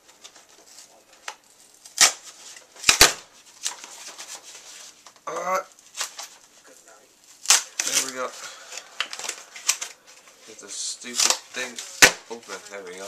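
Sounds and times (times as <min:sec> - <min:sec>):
plastic packaging crackling: 0:00.0 - 0:13.0
packaging snapping: 0:07.4 - 0:10.0.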